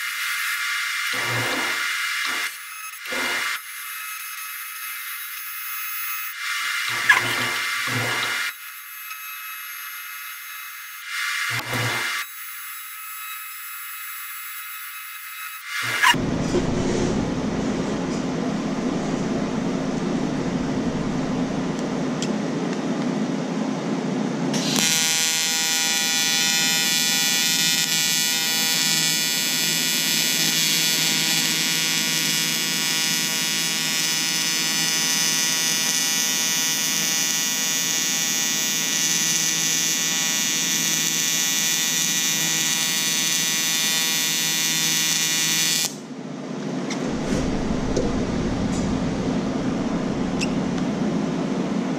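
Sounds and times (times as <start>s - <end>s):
welding arc buzzing: 0.0s - 22.2s, 24.6s - 46.1s
steady background noise: 46.2s - 51.9s.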